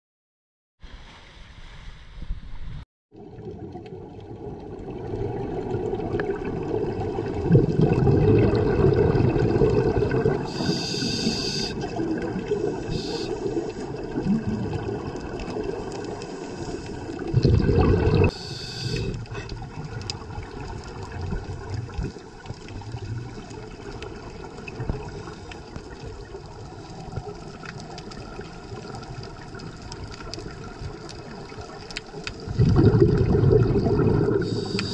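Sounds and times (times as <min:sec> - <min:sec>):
underwater regulator bubbling: 0:03.4 - 0:25.4, 0:32.1 - 0:34.9.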